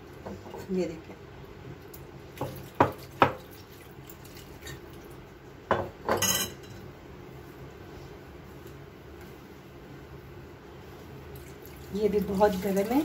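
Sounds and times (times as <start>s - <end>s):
spoon and bowls clinking: 6.1s - 6.9s.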